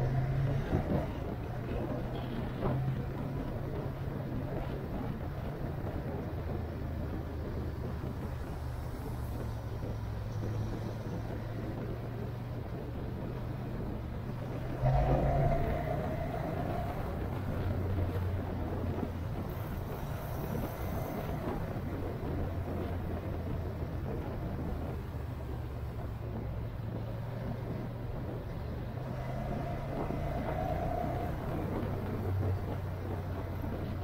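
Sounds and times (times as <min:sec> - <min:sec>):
road and wind noise: 0:00.0 - 0:34.0
vehicle engine drone: 0:00.0 - 0:34.0.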